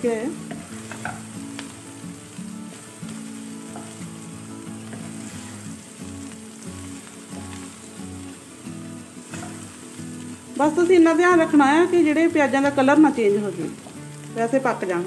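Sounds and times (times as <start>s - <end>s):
onions sizzling in oil: 0.0s - 15.0s
soft background music: 0.0s - 15.0s
spatula stirring in pan: 0.4s - 10.8s.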